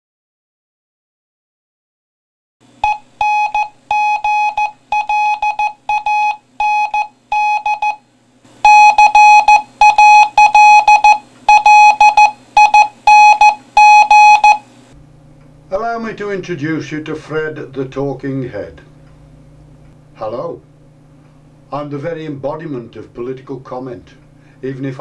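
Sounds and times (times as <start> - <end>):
electronic morse code beeping: 2.8 - 8.0, 8.6 - 14.6.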